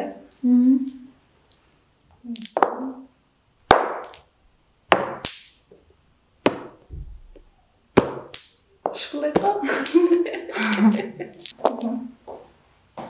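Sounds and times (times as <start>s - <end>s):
dull thump: 6.5s - 7.4s.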